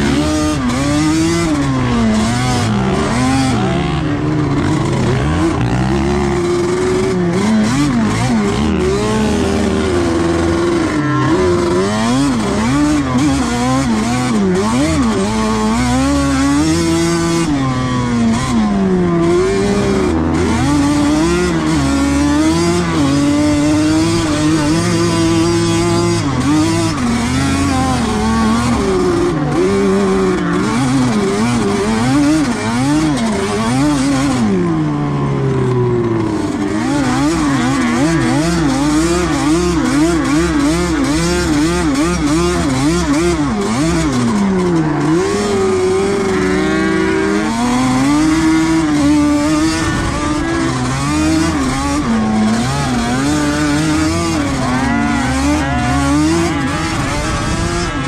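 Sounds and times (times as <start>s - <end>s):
quad engine revving: 0.0s - 58.0s.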